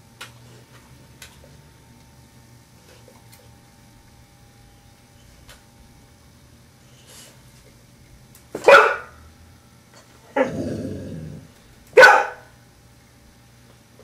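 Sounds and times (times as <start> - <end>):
dog barking: 8.6 - 9.2, 12.0 - 12.5
dog growling: 10.3 - 11.6.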